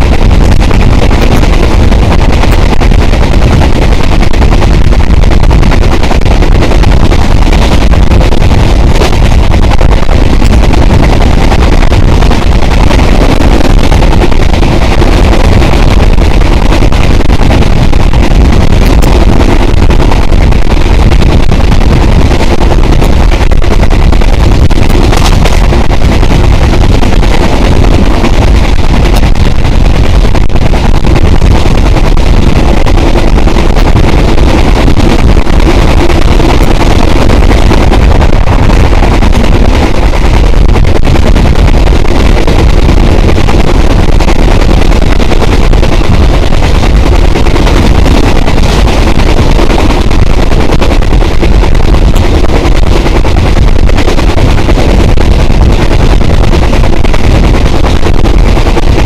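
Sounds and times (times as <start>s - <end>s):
wind buffeting microphone: 0.0s - 51.5s.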